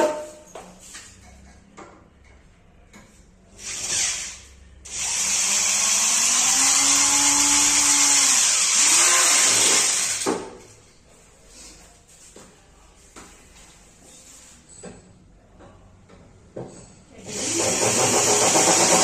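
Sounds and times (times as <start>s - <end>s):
cordless drill driving screw: 17.3s - 19.0s.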